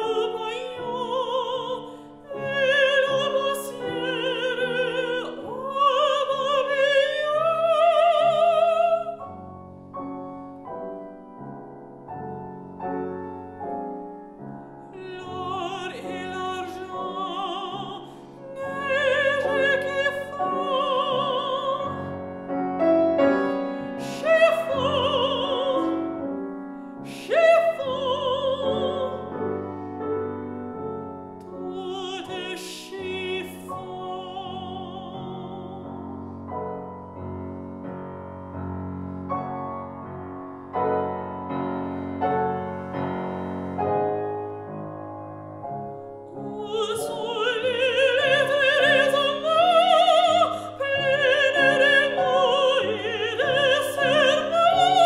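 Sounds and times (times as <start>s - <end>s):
woman singing with vibrato: 0.0s - 9.2s, 15.0s - 22.3s, 23.3s - 26.1s, 27.0s - 29.4s, 31.6s - 35.9s, 46.5s - 55.0s
grand piano: 0.0s - 55.0s.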